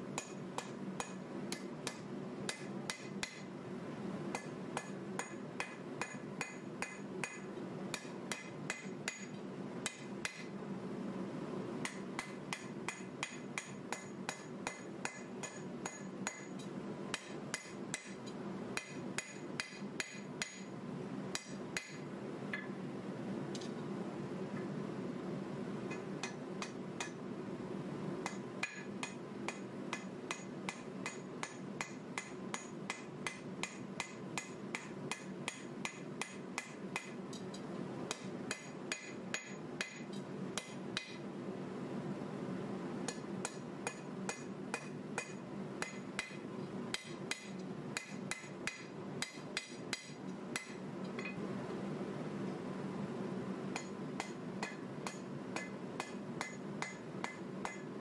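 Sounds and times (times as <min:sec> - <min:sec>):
steady low hum: 0:00.0 - 0:58.0
hammer striking steel on anvil: 0:00.2 - 0:03.5, 0:04.3 - 0:10.5, 0:11.8 - 0:20.7, 0:21.3 - 0:22.0, 0:25.9 - 0:27.2, 0:28.2 - 0:37.2, 0:38.1 - 0:41.2, 0:43.1 - 0:51.4, 0:53.8 - 0:57.9.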